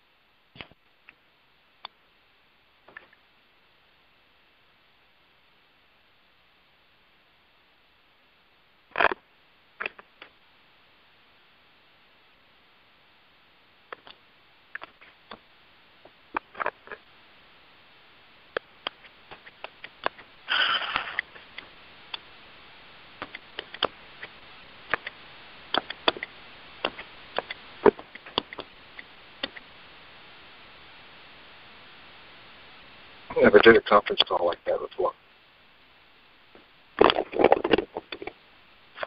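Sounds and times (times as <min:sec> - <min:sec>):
faint steady hiss: 0:00.0 - 0:39.0
clicks and taps: 0:23.2 - 0:29.7.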